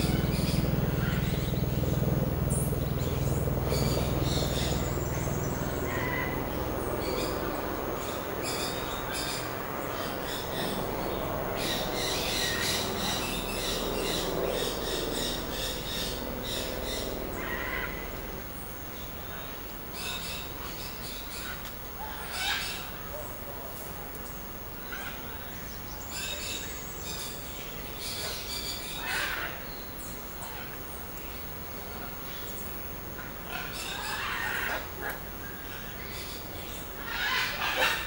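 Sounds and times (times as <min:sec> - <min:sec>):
low rumble: 0:00.0 - 0:18.6.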